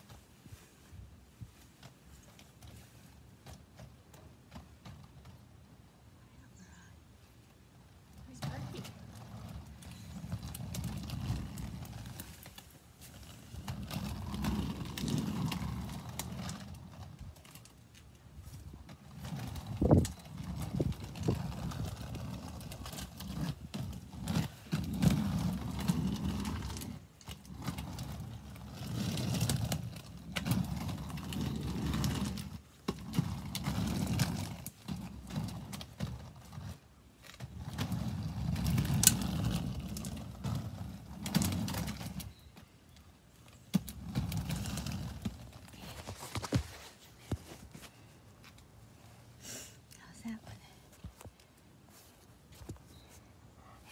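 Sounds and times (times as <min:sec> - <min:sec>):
skate wheels rolling on concrete: 0:00.0 - 0:53.9.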